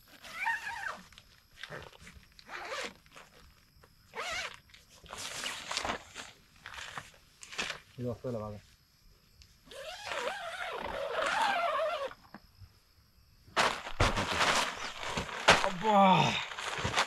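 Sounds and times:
tent zipper rasping: 0:00.0 - 0:03.4, 0:04.1 - 0:07.0, 0:09.7 - 0:12.2.

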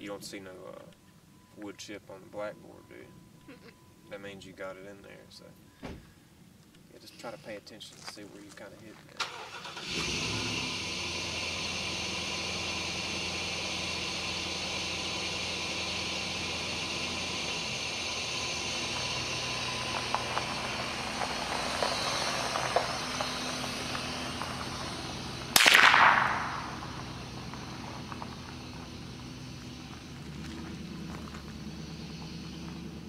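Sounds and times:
engine-like hum: 0:06.9 - 0:33.0
rifle shot: 0:25.5 - 0:26.9.

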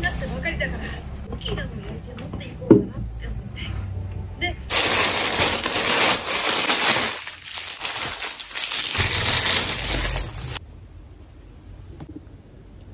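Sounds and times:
plastic packaging crinkling: 0:04.7 - 0:10.6.

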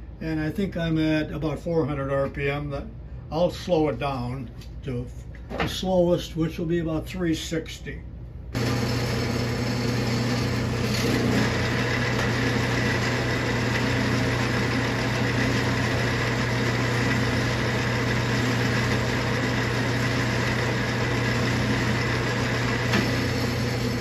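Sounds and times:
metal lathe humming: 0:08.6 - 0:24.0.

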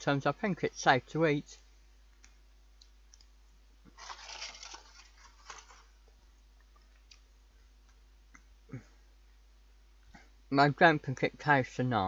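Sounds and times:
foil crackling: 0:04.0 - 0:05.9.

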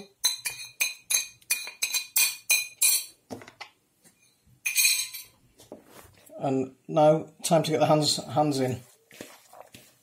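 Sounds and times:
utensil clinking on ceramic plate: 0:00.0 - 0:03.2, 0:04.6 - 0:05.4.

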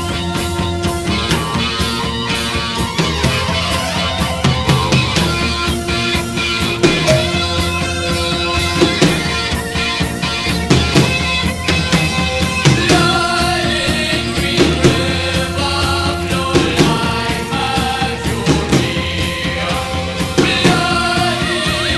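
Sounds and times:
drum kit beat: 0:00.0 - 0:21.9
post-punk rock song: 0:00.0 - 0:21.9.

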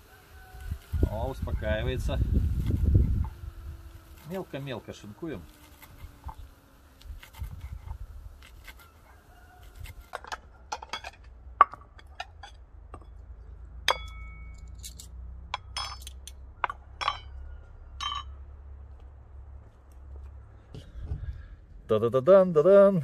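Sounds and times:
ceramic bowls clinking: 0:18.0 - 0:18.4.

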